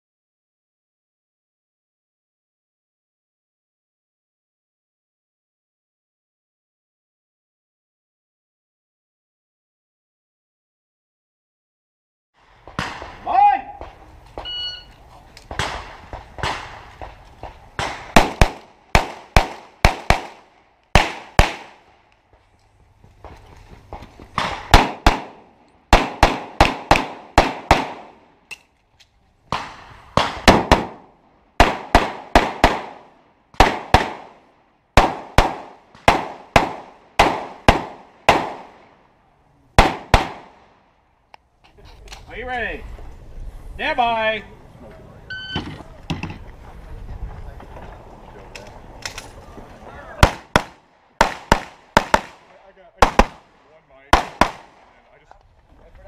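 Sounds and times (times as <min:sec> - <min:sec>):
pistol shots: 0:15.4 - 0:21.9, 0:24.4 - 0:28.3, 0:29.5 - 0:34.4, 0:35.0 - 0:39.0, 0:39.8 - 0:40.8, 0:50.2 - 0:55.0.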